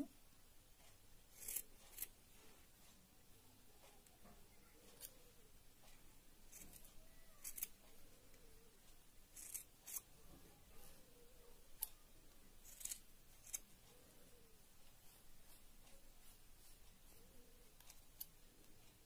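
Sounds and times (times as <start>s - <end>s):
scissors snipping yarn: 1.3s - 2.2s, 6.5s - 7.9s, 9.3s - 10.2s, 12.6s - 13.7s.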